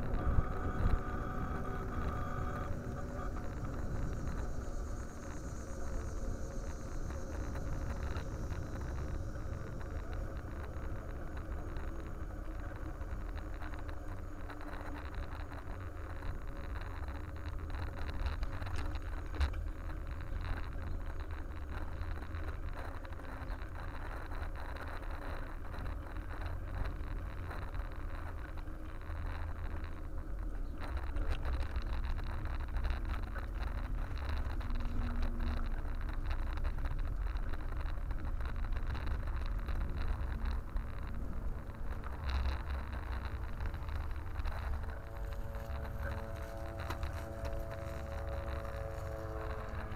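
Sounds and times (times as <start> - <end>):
faint steady whine: 0.0 - 49.9
rolling vibration on pavement: 0.0 - 49.9
wind rumble on microphone: 0.0 - 49.9.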